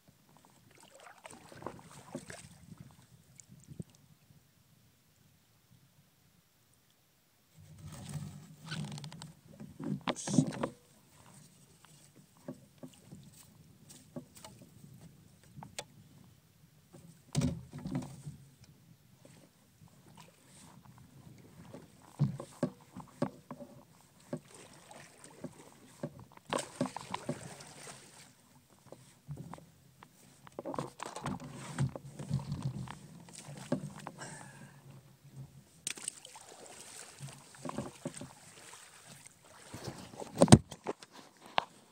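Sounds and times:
paddle splashing in water: 0.4 - 3.8, 19.4 - 29.3, 30.6 - 34.6, 35.7 - 41.9.

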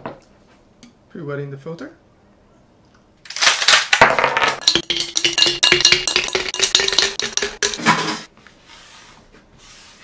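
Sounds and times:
ice cubes cracking from plastic tray: 3.3 - 4.0
ice cubes clattering into glass: 3.4 - 8.0.

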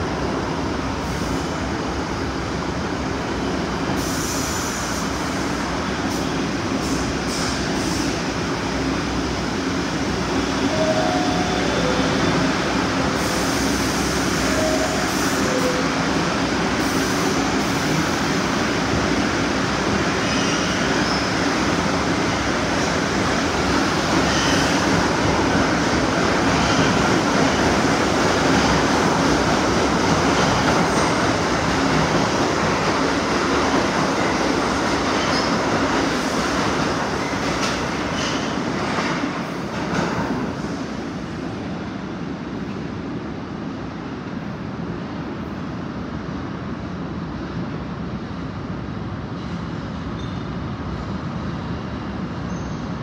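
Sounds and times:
subway train rumbling hum: 0.0 - 53.0
train doors shutting: 19.0 - 41.0.

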